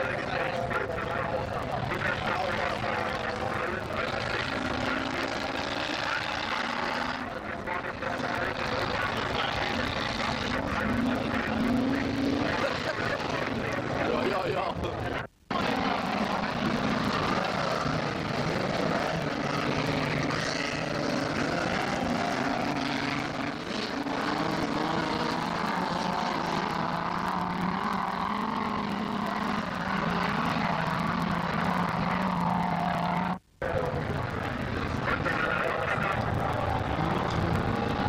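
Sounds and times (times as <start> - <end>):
racing car engines revving: 0.0 - 38.0.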